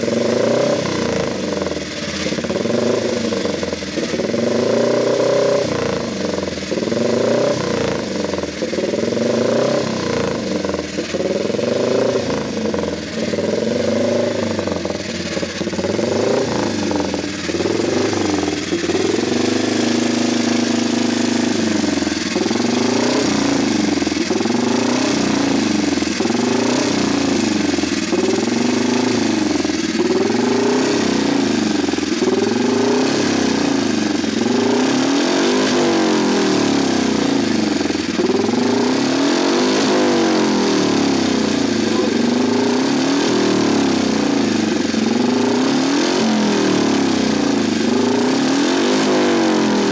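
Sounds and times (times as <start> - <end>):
racing engine revving: 0.0 - 49.9.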